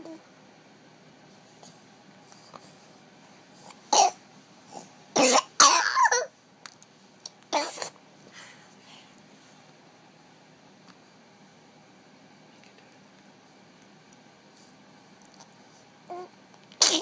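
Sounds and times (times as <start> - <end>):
loud coughs: 3.9 - 4.2, 5.2 - 6.3.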